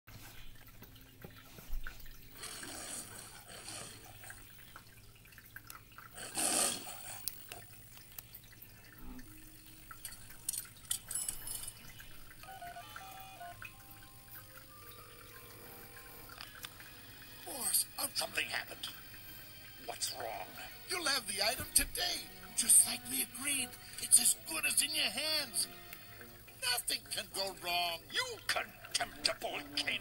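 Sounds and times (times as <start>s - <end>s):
soft orchestral music: 12.4s - 30.0s.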